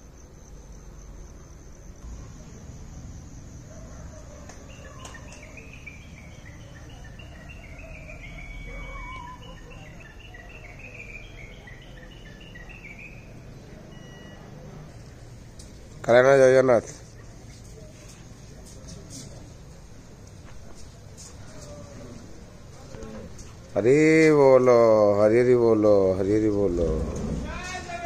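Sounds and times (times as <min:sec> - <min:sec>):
crickets trilling: 0:00.0 - 0:28.0.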